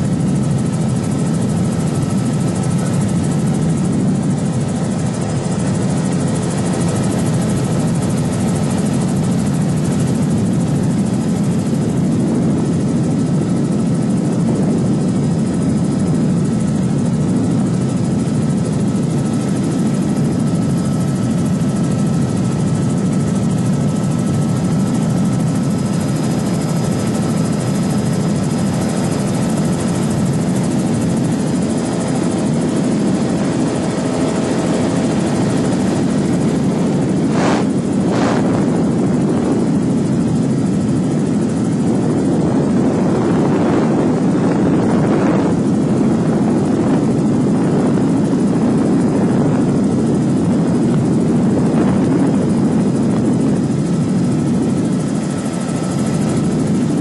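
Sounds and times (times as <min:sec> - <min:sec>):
aircraft engine and propeller drone: 0:00.0 - 0:57.0.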